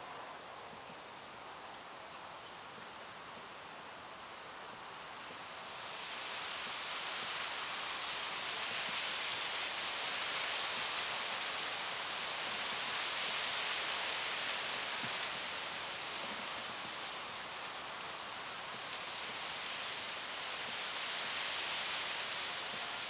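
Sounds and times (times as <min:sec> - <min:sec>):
outdoor rushing hiss: 0:04.6 - 0:23.0.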